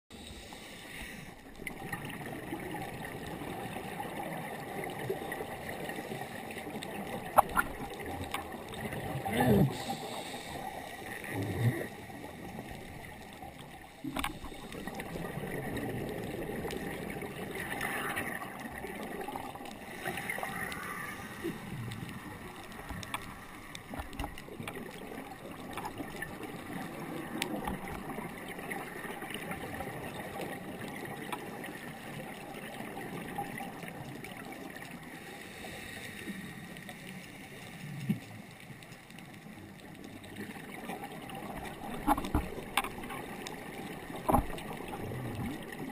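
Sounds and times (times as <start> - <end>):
scuba regulator breathing: 0.1 - 1.4, 9.4 - 12.8, 19.8 - 22.4, 35.1 - 37.6
muffled underwater noise: 0.1 - 45.9
bubbles gurgling: 1.4 - 35.1, 39.9 - 45.9.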